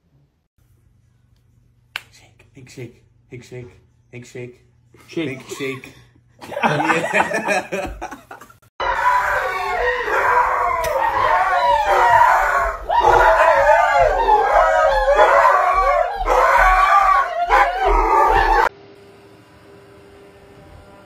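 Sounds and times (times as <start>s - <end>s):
dog howling: 8.8s - 18.7s.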